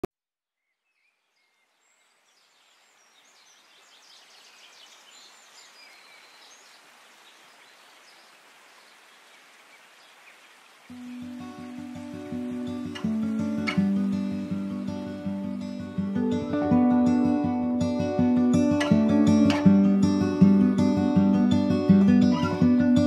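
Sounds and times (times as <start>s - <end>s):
birds chirping and trilling: 0.6s - 16.4s
stream running over rocks: 2.2s - 16.5s.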